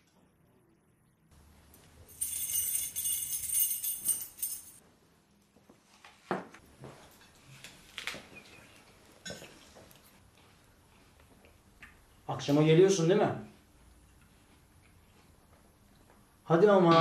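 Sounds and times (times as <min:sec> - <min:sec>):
keys jingling: 0:01.8 - 0:04.8.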